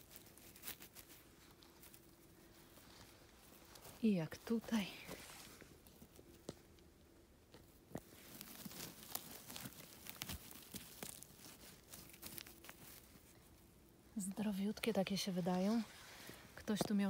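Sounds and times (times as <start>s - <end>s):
dry pine needles crackling: 0.0s - 17.0s.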